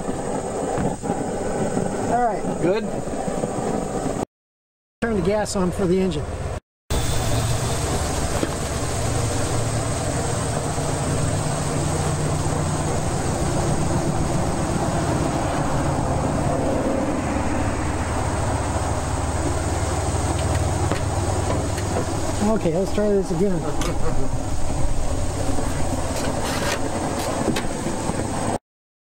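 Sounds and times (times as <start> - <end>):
small gas engine running: 6.9 - 28.6.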